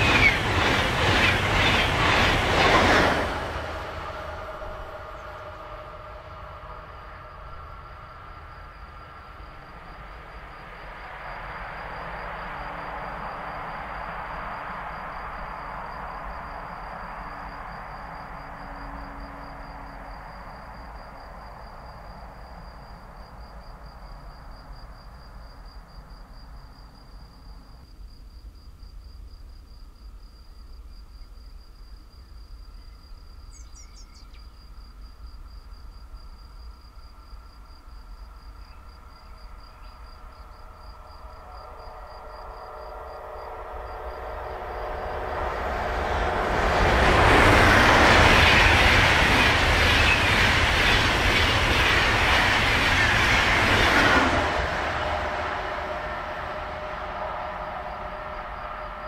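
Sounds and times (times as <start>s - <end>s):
cricket trilling: 29.6s - 59.0s.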